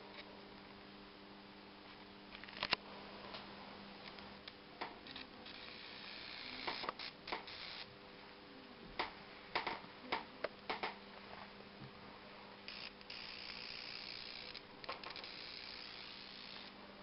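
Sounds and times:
television electrical hum: 0.0 - 17.0
high-voltage sparks snapping: 4.8 - 7.9, 12.7 - 16.7.

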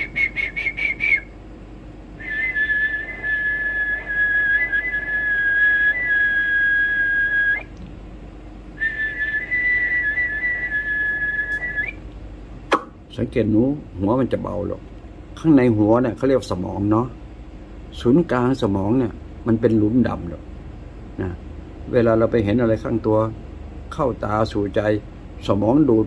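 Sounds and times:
man whistling high notes: 0.0 - 1.4, 2.2 - 7.7, 8.8 - 12.0.

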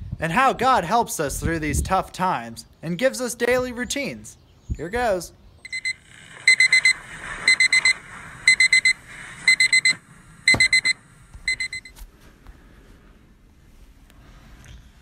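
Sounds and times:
alarm clock beeping: 5.6 - 11.9
thump: 10.5 - 10.8.

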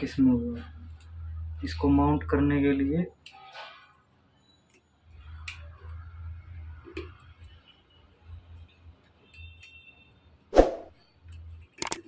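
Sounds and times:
plastic clicks of camera handling: 11.8 - 12.0.

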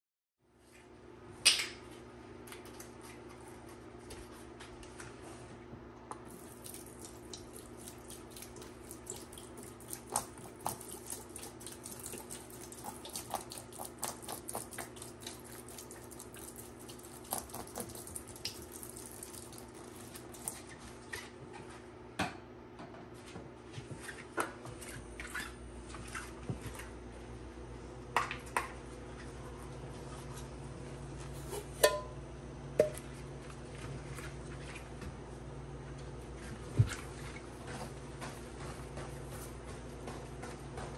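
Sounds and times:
liquid dripping and splashing: 6.3 - 20.9.

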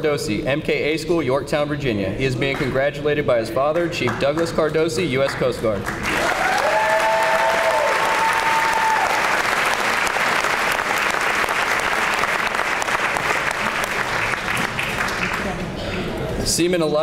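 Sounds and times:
audience applauding: 5.2 - 16.1
long held cheer: 6.0 - 12.6.

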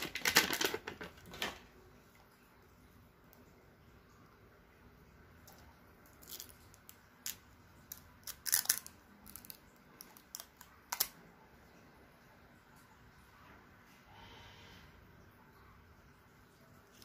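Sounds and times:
plastic film crinkling: 0.0 - 1.6, 6.1 - 11.2.

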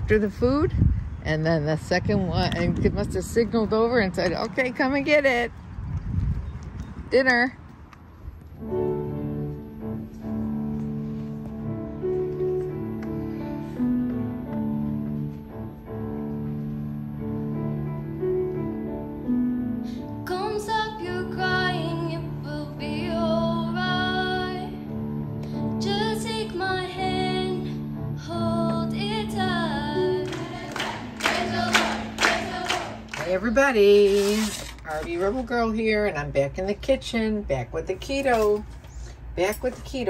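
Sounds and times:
piano chords: 8.5 - 34.0.

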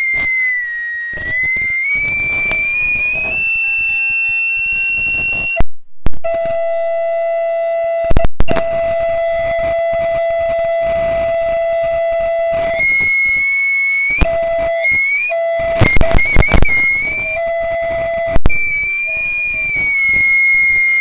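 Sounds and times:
audio feedback howl: 0.0 - 21.0
loud pops: 15.7 - 17.4.

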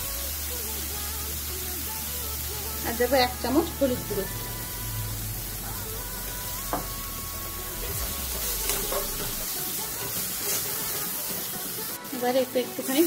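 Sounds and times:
spices sizzling in hot oil: 0.0 - 13.0
metal spatula scraping pan: 7.8 - 11.7.

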